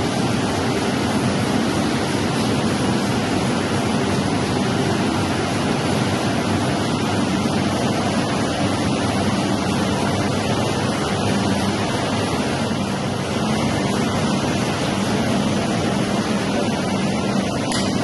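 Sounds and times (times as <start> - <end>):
printing press machine noise: 0.0 - 18.0.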